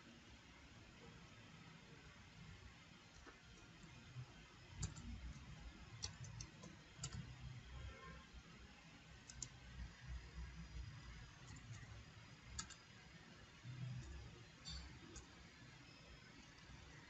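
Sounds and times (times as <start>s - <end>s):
keyboard and mouse clicks: 4.8s - 7.4s, 9.2s - 9.8s, 10.6s - 12.9s, 13.7s - 15.4s.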